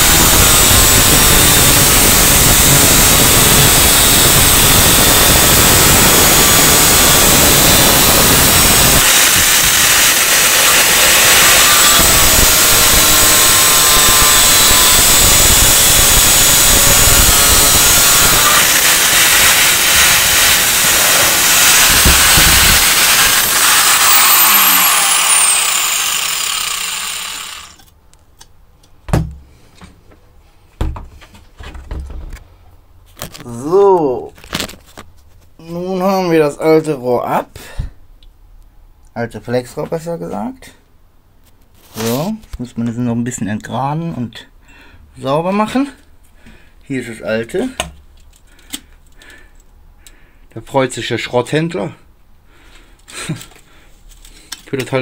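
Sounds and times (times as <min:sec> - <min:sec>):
grinder spinning down whine: 0:00.0 - 0:27.8
angle grinder cutting metal pipe: 0:00.0 - 0:27.9.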